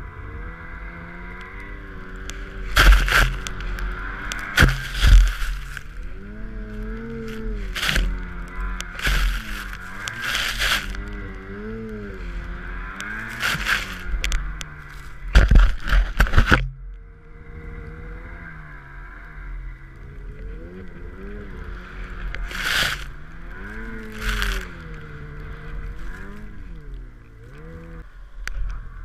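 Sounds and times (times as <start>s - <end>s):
snowmobile engine running: 0.0s - 29.0s
snow spraying: 2.4s - 5.9s, 6.8s - 12.3s, 13.0s - 14.1s, 22.4s - 24.9s.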